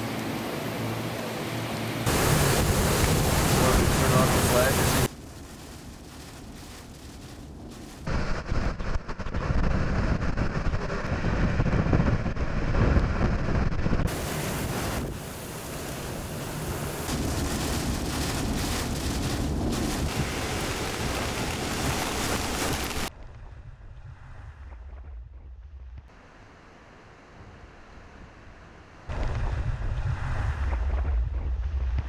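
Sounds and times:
heavy rain: 0.0 - 7.3, 14.1 - 23.1
hurricane wind rushing: 0.6 - 23.1
wind buffeting the microphone: 7.1 - 16.0.

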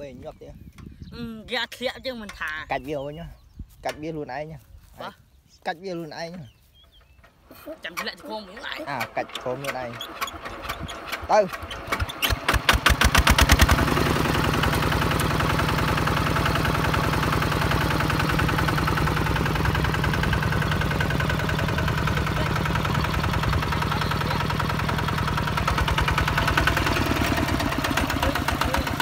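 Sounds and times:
diesel tractor engine knocking: 6.8 - 29.0.

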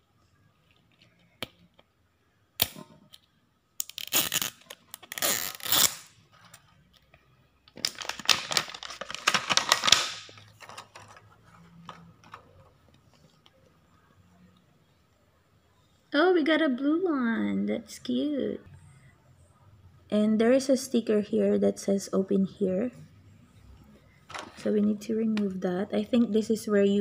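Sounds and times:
plastic wrapper crackling: 7.7 - 11.2.

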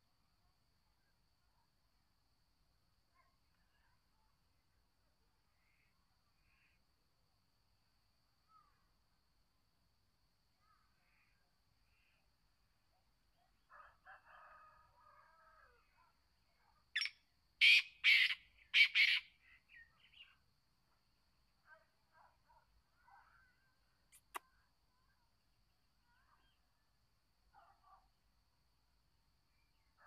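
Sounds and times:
faint bird chirps: 5.4 - 6.9, 8.2 - 9.0, 10.5 - 13.6, 15.4 - 20.5, 21.6 - 27.0
francolin call: 17.0 - 20.4.

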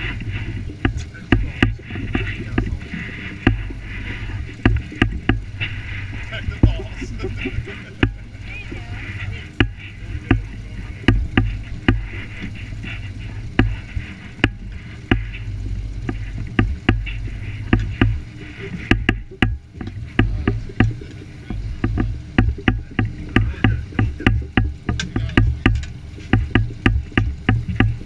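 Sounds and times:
water hiss: 0.0 - 19.4
boat motor rumbling: 0.0 - 28.0
hull slapping waves: 0.0 - 28.0.

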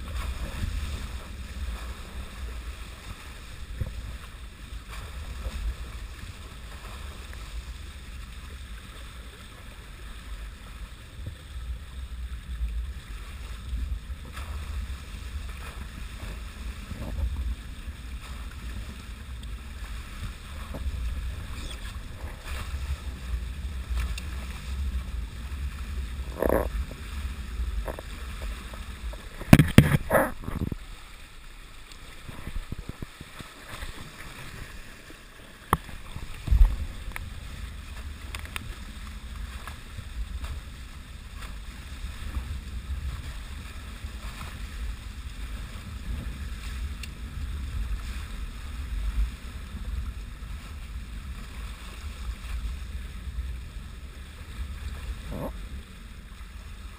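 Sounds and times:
water rushing past hulls: 0.0 - 56.9
wind buffeting microphone: 19.5 - 30.9
sharp knock and thump: 29.5 - 30.1.

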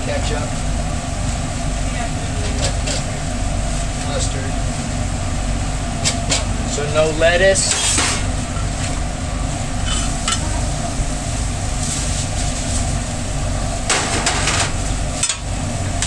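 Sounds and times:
low machine drone: 0.0 - 16.0
food sizzling: 8.3 - 15.2
metal spatula scraping griddle: 9.8 - 10.4.

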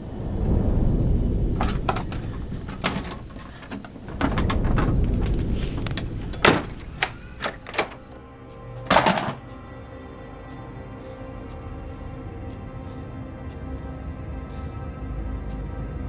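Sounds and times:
low rumbling horror drone: 0.0 - 8.5
scattered clicks: 1.1 - 8.2.

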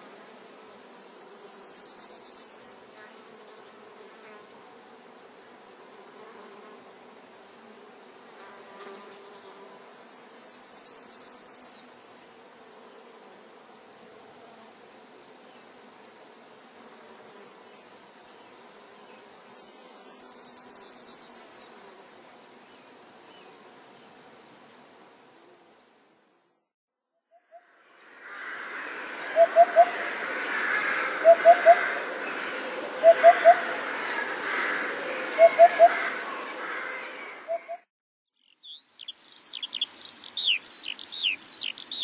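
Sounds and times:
faint steady hiss: 0.0 - 26.7, 38.4 - 42.0
insect chirping trills: 1.4 - 2.8, 10.4 - 12.3, 17.6 - 22.8, 27.6 - 36.3.

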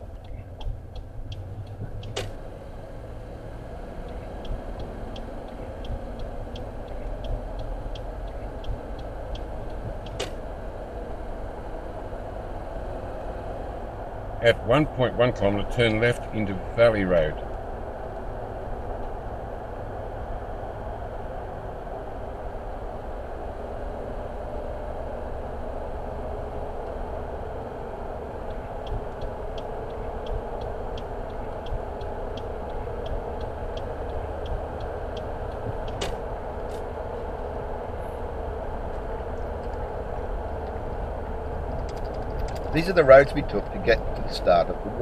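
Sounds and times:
light evenly spaced ticks: 0.0 - 11.2, 25.4 - 45.0
car road and engine rumble: 0.0 - 45.0.

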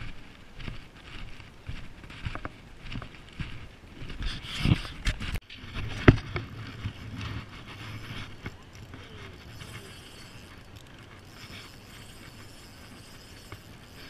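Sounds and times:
fishing reel ticking: 6.5 - 14.0.

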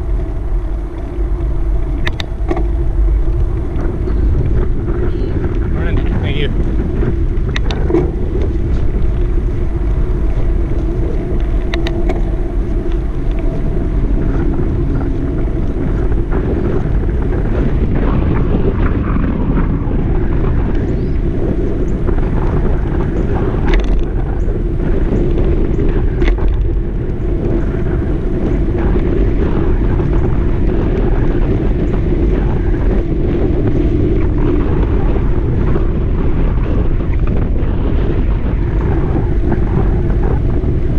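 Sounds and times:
wind noise on microphone: 0.0 - 40.9
faint clicks: 2.0 - 2.8, 10.7 - 13.6.

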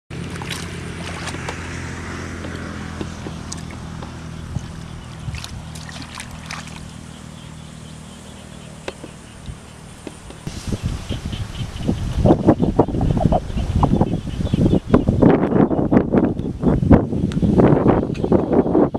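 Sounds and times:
hands sloshing in muddy water: 0.1 - 7.1
low engine hum: 0.1 - 18.9.

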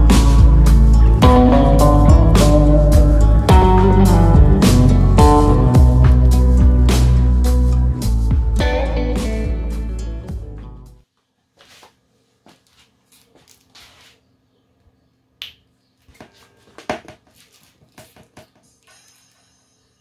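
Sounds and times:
guitar music: 0.0 - 11.0.

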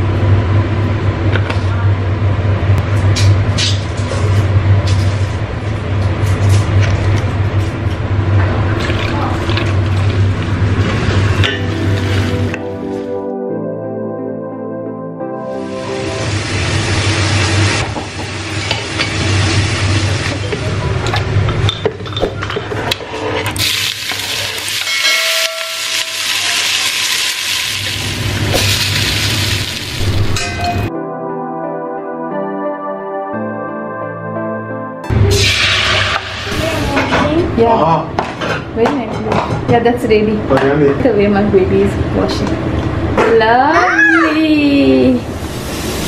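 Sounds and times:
low machine hum: 0.0 - 30.9, 35.0 - 46.0
onions sizzling in pot: 16.2 - 20.6, 23.6 - 30.4, 35.3 - 37.0, 45.3 - 46.0.

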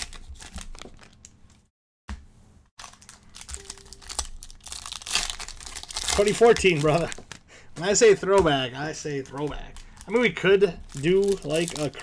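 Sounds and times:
wrappers crinkling and tearing: 0.0 - 1.6, 2.8 - 8.2, 8.8 - 12.0.

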